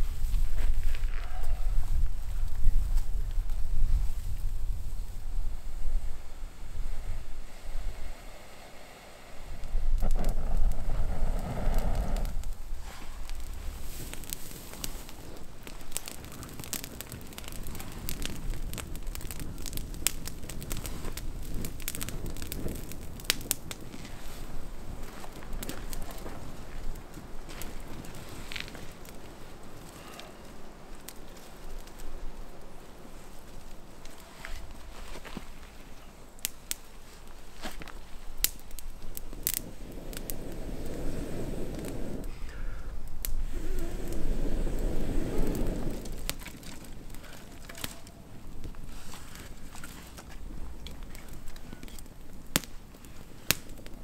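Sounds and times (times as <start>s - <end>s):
campfire crackling and popping: 0.0s - 54.0s
rushing breathy noise: 5.6s - 14.0s, 39.7s - 46.2s.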